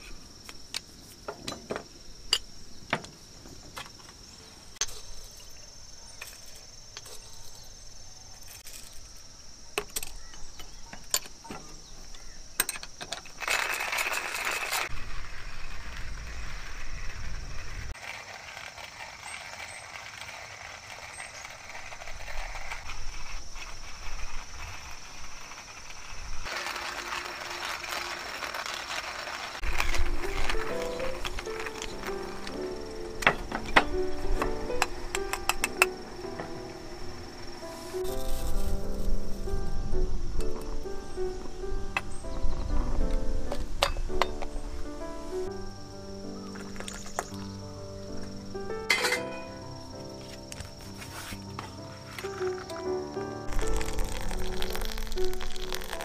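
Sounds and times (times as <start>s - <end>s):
metallic cookware clinks: 48.9s - 49.5s.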